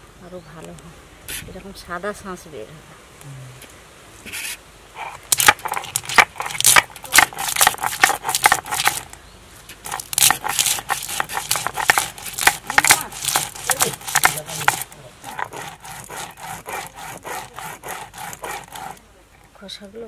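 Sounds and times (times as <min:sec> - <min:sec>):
seeds cracking under a roller: 0:05.0 - 0:19.6.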